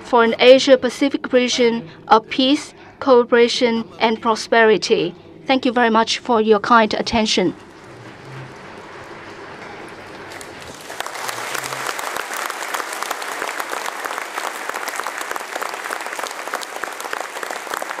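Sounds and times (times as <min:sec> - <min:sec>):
audience applauding: 0:07.7 - 0:18.0.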